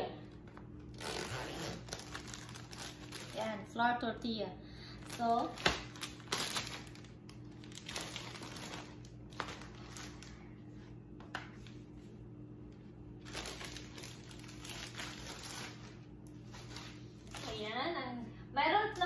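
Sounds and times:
plastic bag crinkling: 0:00.8 - 0:03.7, 0:05.0 - 0:10.4, 0:13.2 - 0:17.7
zip seal pulled open: 0:00.9 - 0:02.1.

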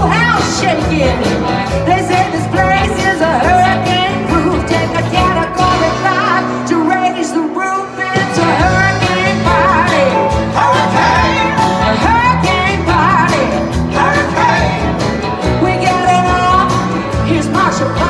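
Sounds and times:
country-rock band playing: 0:00.0 - 0:18.0
lead singing: 0:07.7 - 0:18.0.

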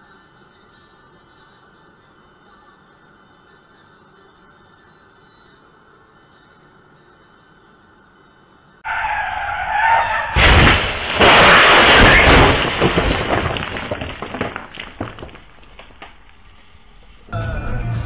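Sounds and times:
tyre screech: 0:08.9 - 0:10.6
car crashing through wall: 0:08.9 - 0:14.6
clattering debris: 0:10.0 - 0:17.3.

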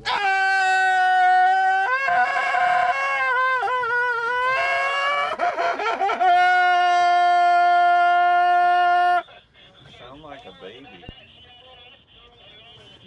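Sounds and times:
man screaming: 0:00.0 - 0:09.2.

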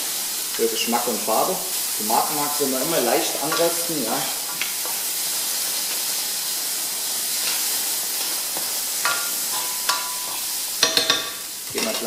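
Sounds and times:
vegetables sizzling in a pan: 0:00.0 - 0:12.0.

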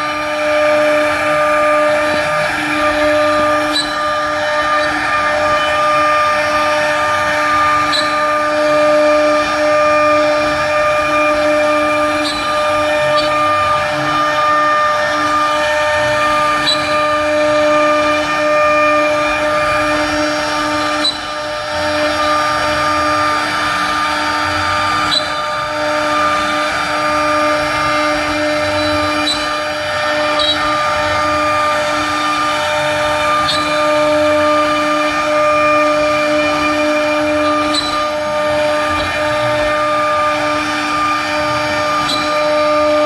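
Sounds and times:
bit rasping through wood: 0:00.0 - 0:43.0
router spindle whine: 0:00.0 - 0:43.0.

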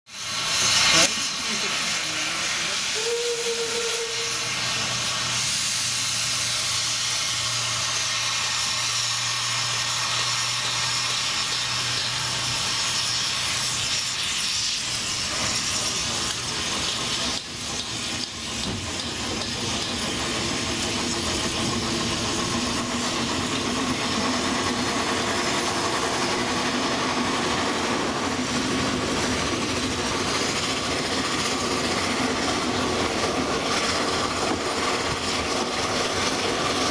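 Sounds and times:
locomotive steam hissing: 0:00.1 - 0:36.9
train wagons rumbling on rails: 0:00.2 - 0:36.9
short high whistle note: 0:03.0 - 0:04.5.

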